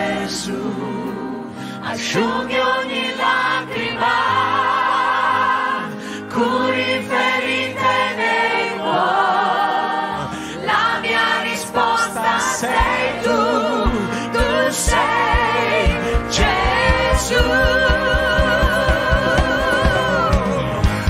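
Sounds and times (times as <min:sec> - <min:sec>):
instrumental backing: 0:00.0 - 0:21.0
voices singing worship song: 0:00.0 - 0:21.0
low drum beats: 0:12.6 - 0:21.0.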